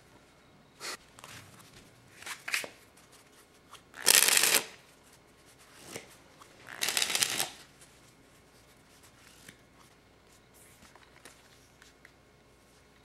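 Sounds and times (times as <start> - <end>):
rapid card flutter: 4.0 - 4.7, 6.7 - 7.6.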